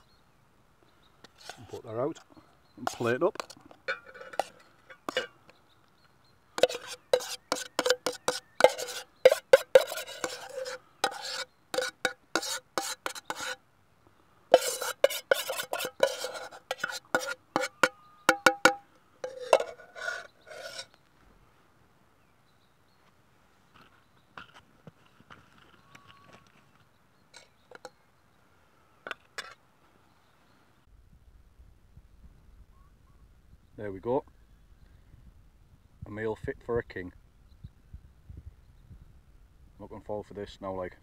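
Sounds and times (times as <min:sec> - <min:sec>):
metal fork scraping a metal pot: 0:01.4 - 0:05.3, 0:06.6 - 0:13.6, 0:14.5 - 0:21.0.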